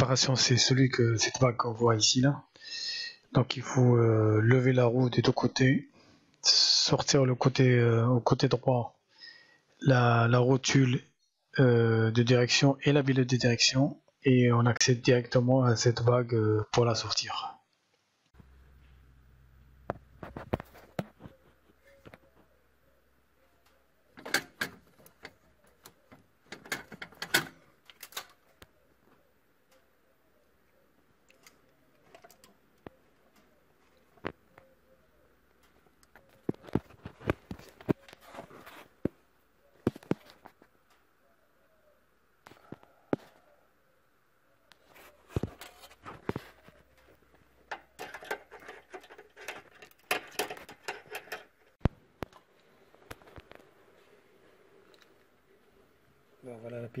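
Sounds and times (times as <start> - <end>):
screwdriver scraping on metal: 47.7 - 51.8.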